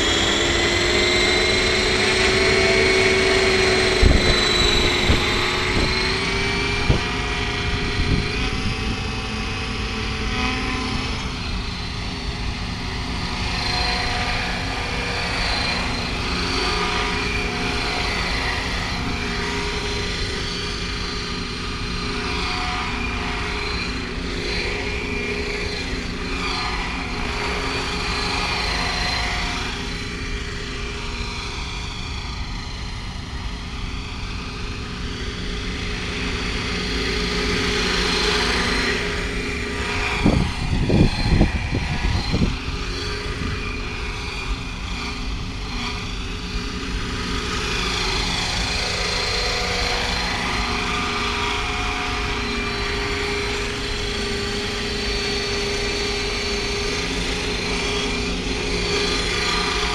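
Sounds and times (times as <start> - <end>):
loud low buffeting: 0.0 - 10.3
helicopter rotor noise: 0.0 - 59.9
simulated turbine whine: 0.0 - 59.9.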